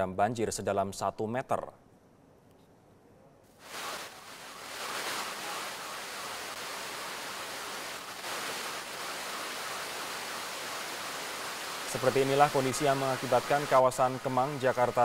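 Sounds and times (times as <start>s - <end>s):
water pouring and rushing: 3.6s - 15.0s.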